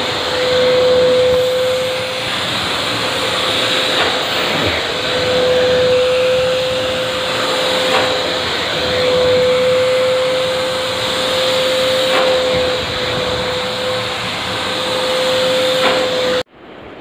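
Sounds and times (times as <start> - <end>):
vacuum cleaner whining: 0.0 - 16.5.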